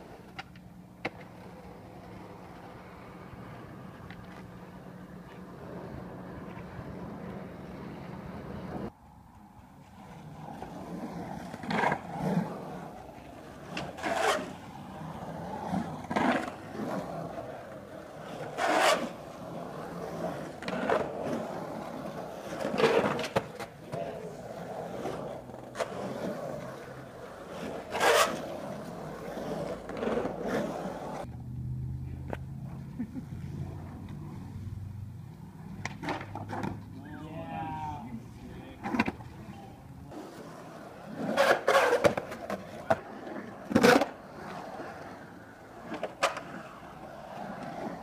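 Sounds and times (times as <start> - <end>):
skateboard clacks and scrapes: 0.0 - 8.9, 9.8 - 31.3, 35.6 - 36.9, 38.8 - 48.0
skateboard rolling on concrete: 0.0 - 48.0.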